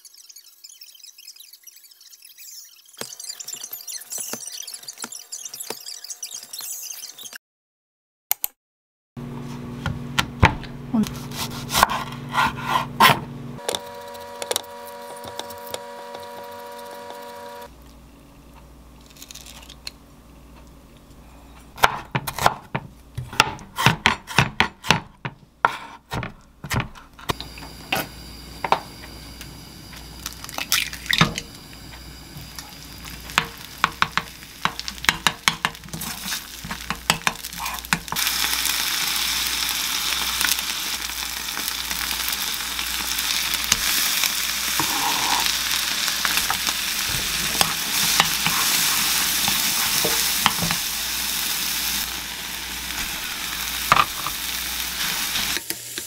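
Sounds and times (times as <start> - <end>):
egg sizzling in a pan: 27.3 - 56.0.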